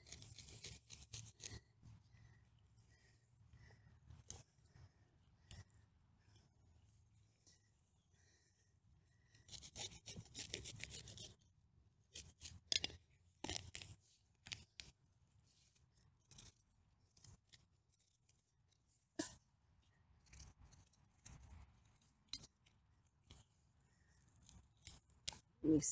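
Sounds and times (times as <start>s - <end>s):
roots being torn loose: 0.0s - 1.6s.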